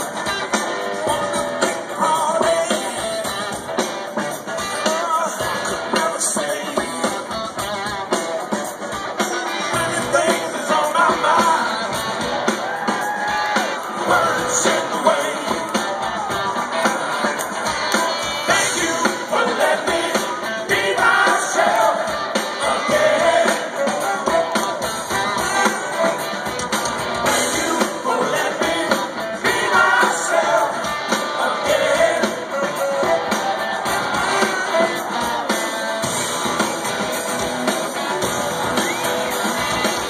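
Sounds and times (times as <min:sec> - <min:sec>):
live rock band playing: 0:00.0 - 0:40.0
lead singer singing: 0:01.0 - 0:03.5, 0:04.7 - 0:07.3, 0:09.4 - 0:12.0, 0:13.1 - 0:26.2, 0:27.2 - 0:36.0.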